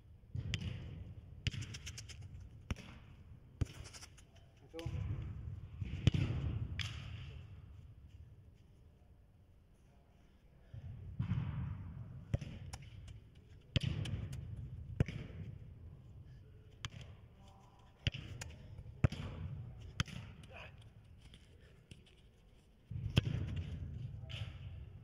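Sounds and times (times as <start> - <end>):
football being kicked: 4.8 - 7.3, 11.1 - 15.6, 18.0 - 20.6, 22.9 - 24.7.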